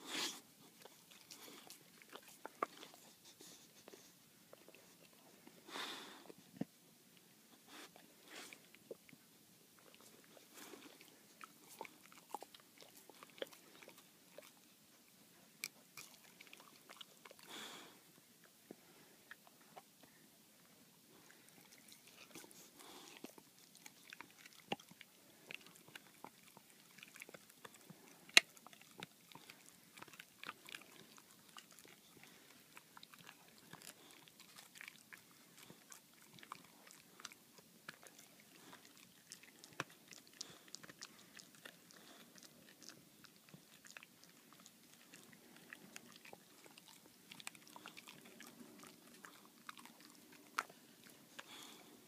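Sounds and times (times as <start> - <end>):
dog chewing a stick: 0.2 - 5.2, 9.8 - 14.7, 21.3 - 52.0.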